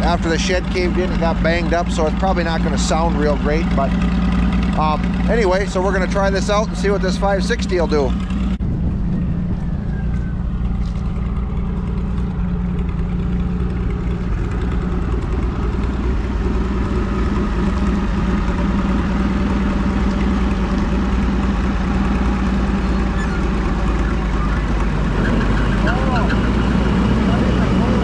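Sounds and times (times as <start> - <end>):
tractor engine running: 0.0 - 28.0.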